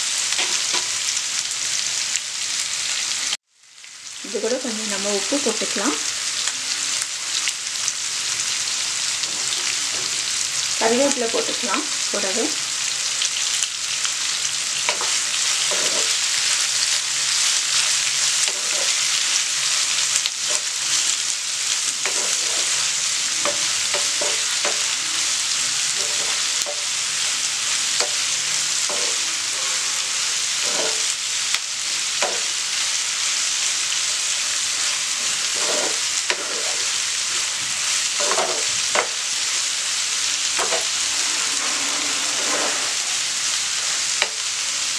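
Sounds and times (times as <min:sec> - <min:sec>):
onions sizzling in hot oil: 0:00.0 - 0:44.9
wooden spatula scraping pan: 0:14.9 - 0:16.2, 0:17.8 - 0:19.2, 0:21.9 - 0:25.0, 0:25.9 - 0:26.8, 0:28.8 - 0:31.1, 0:34.8 - 0:37.5, 0:38.2 - 0:39.1, 0:40.6 - 0:43.5.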